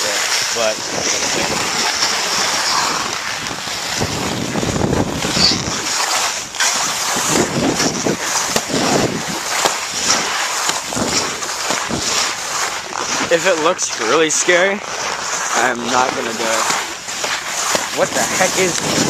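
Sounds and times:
skis scraping over snow: 0:00.0 - 0:19.0
wind on microphone: 0:00.0 - 0:19.0.

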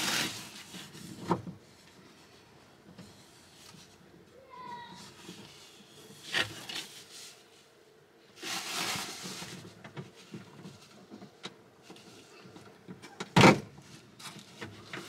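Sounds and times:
plastic sheet rustling: 0:00.0 - 0:01.2, 0:08.4 - 0:11.0.

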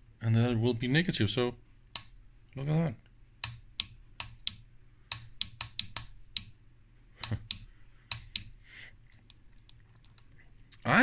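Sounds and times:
faint steady hum: 0:00.0 - 0:11.0
oscilloscope knobs clicking: 0:01.9 - 0:02.2, 0:03.4 - 0:06.6, 0:07.2 - 0:10.3.

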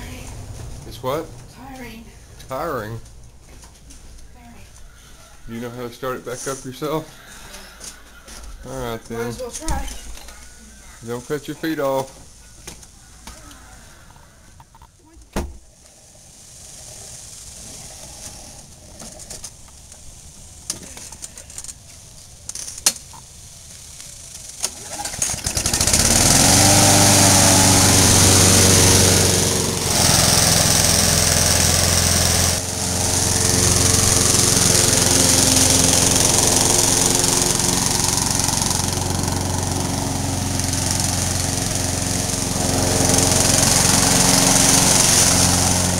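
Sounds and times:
lawn mower engine running: 0:15.7 - 0:45.9.

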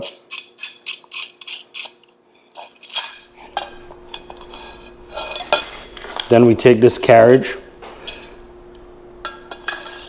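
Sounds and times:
metallic scrape: 0:00.0 - 0:06.0, 0:09.3 - 0:10.0.

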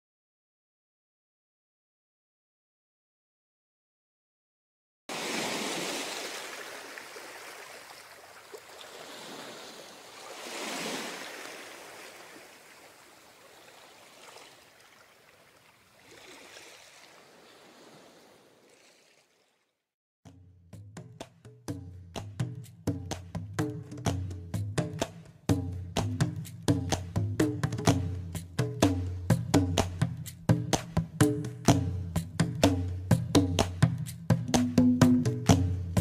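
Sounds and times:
waves breaking on beach: 0:05.1 - 0:19.6.

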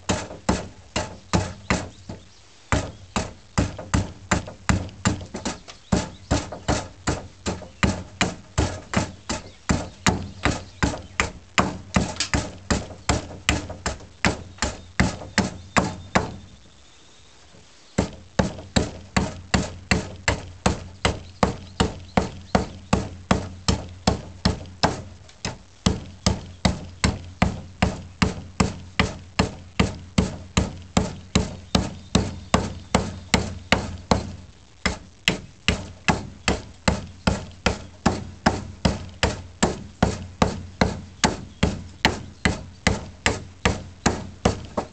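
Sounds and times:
axe chopping wood: 0:00.1 - 0:16.4, 0:18.0 - 0:44.9.

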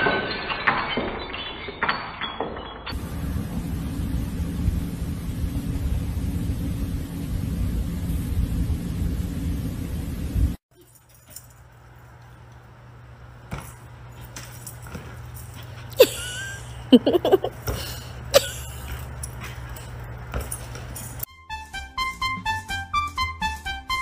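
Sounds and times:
steady low hum: 0:03.0 - 0:21.3.

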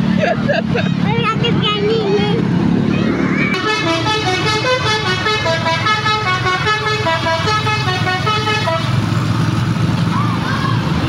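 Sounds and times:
low engine rumble: 0:00.0 - 0:11.0
bus horn playing rapid tune: 0:03.5 - 0:09.1.

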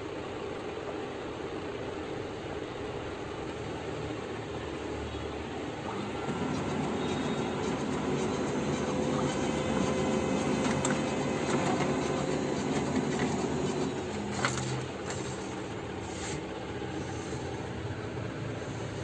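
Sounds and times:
laser printer running: 0:04.7 - 0:19.0
printer sharp click: 0:05.9 - 0:15.4.

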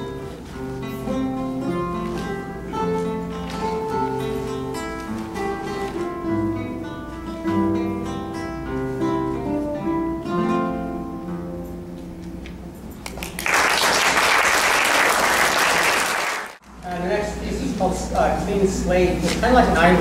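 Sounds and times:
classical guitars playing: 0:00.0 - 0:13.0
people clapping: 0:13.0 - 0:16.6.

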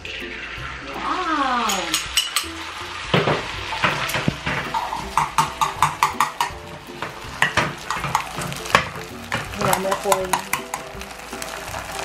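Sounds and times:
chopsticks scraping a frying pan: 0:03.6 - 0:12.0.

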